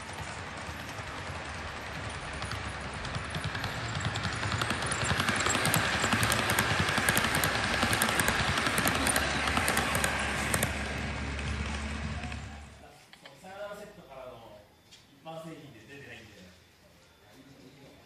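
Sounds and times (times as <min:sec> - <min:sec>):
model train motor hum: 0:00.0 - 0:12.8
small wheel clicks on track: 0:00.0 - 0:12.8.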